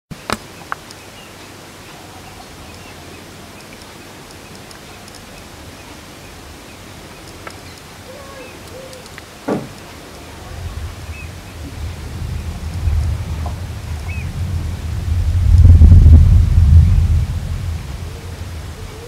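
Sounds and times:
steady outdoor hiss: 0.1s - 19.0s
sharp clicks: 0.2s - 1.0s, 3.6s - 5.4s, 7.2s - 7.9s, 8.6s - 10.0s
faint bird chirps: 0.2s - 11.7s, 14.0s - 14.4s
short thump: 9.5s - 9.8s.

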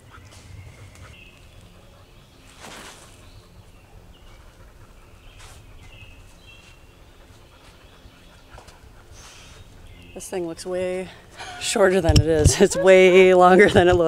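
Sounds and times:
low rumble of wind on microphone: 0.0s - 2.6s
rustling swish: 2.4s - 3.3s.

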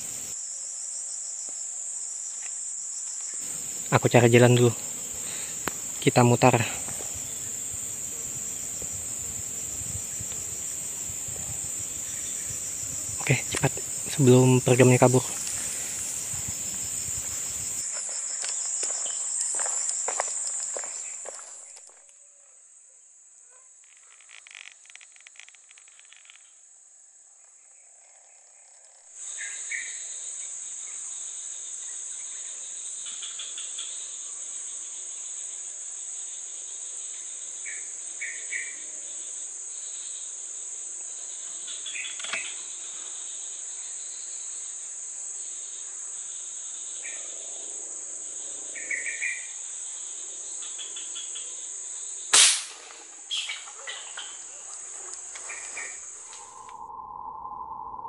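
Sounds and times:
high-pitched insect drone: 0.0s - 21.8s, 53.2s - 58.0s
air rifle shot: 52.3s - 53.0s
bird chirps: 53.3s - 54.7s, 55.4s - 58.0s.

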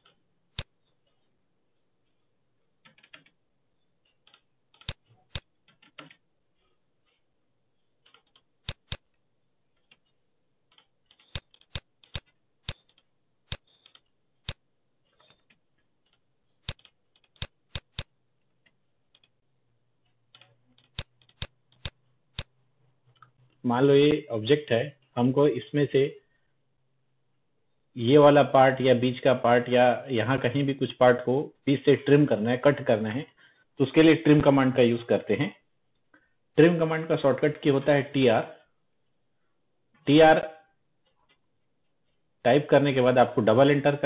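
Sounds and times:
computer mouse clicks: 0.0s - 0.8s, 4.1s - 6.2s, 8.0s - 9.2s, 10.7s - 19.4s, 20.2s - 23.6s.

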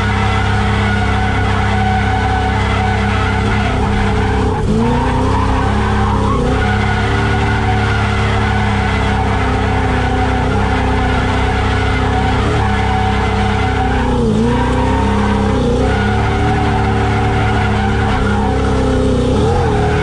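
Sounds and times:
car engine at high revs: 0.0s - 20.0s
tyres skidding and squealing: 0.0s - 20.0s.

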